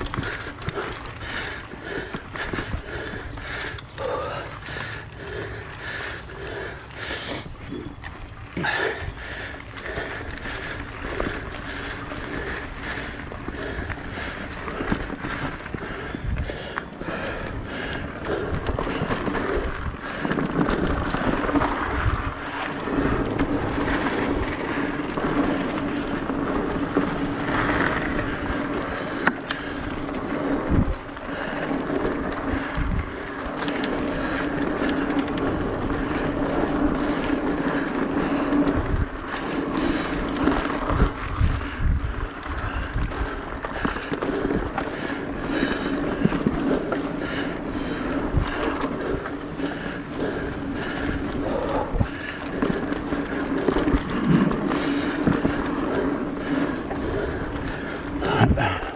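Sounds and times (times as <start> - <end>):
tyres rolling over dirt and leaves: 0.0 - 58.9
wind on microphone: 40.5 - 44.8, 55.2 - 58.9.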